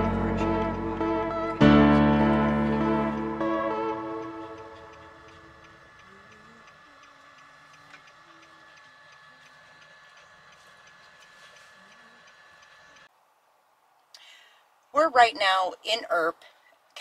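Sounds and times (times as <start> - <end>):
background music: 0.0 - 5.8
turn signal ticking: 2.7 - 13.1.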